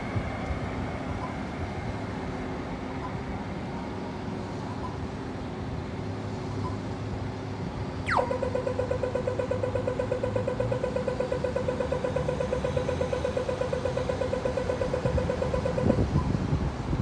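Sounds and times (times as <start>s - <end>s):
low traffic hum: 0.0s - 17.0s
pedestrian crossing signal ticking: 8.1s - 16.4s.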